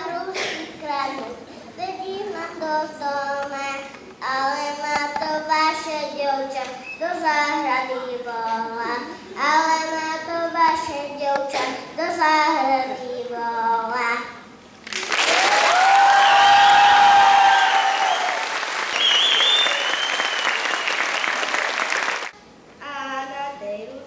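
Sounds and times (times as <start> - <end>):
audience applause: 14.9 - 22.3
whoops and cheers: 15.2 - 21.0.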